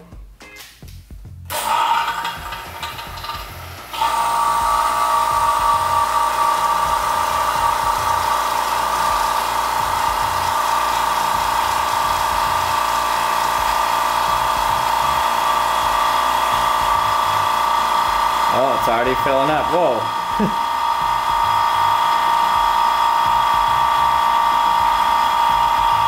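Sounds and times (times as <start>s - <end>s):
vacuum pump whining: 1.5s - 26.0s.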